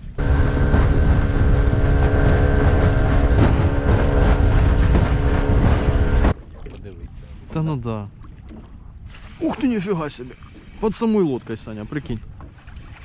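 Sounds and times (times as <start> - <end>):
outboard motor running: 0.0 - 6.8.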